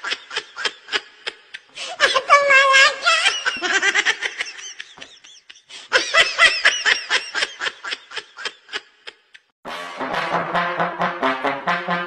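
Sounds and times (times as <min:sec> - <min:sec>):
high-pitched laughter: 0:00.0 - 0:09.3.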